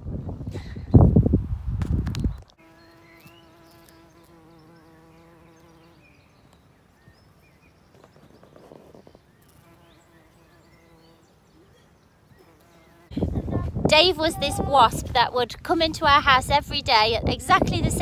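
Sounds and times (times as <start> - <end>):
bumblebee buzzing: 2.6 - 6.3, 8.5 - 11.4, 12.3 - 13.5.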